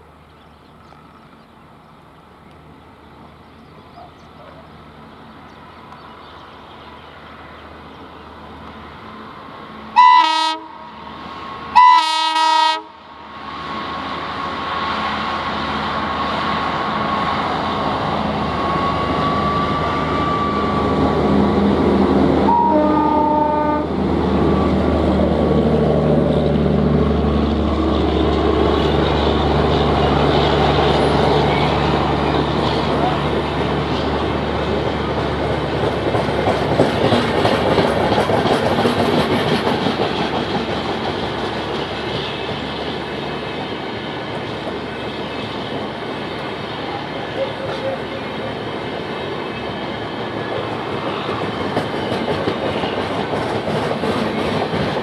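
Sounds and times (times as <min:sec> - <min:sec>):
locomotive engine and wheel noise: 0:00.0 - 0:55.0
diesel locomotive horn blasts: 0:09.9 - 0:11.0, 0:11.7 - 0:13.1, 0:22.4 - 0:24.0, 0:47.4 - 0:48.2.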